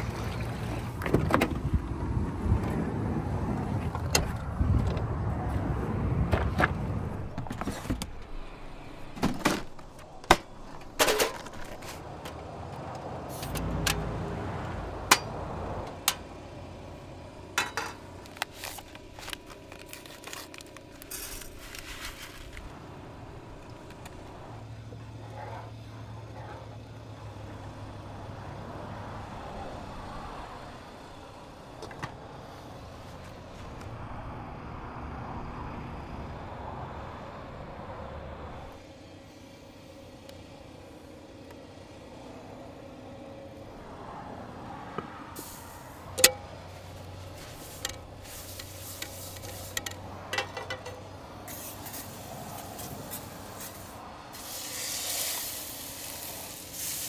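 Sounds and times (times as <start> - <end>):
clicks and knocks of camp stove: 9.1 - 12.4, 15.0 - 16.2, 17.5 - 21.1, 46.2 - 46.5, 47.7 - 51.1
plastic cooler set down: 9.2 - 10.4.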